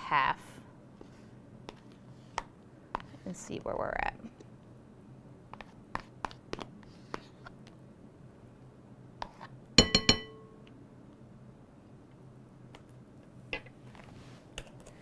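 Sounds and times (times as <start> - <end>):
spoon clinking on glass bowl: 9.8 - 10.5.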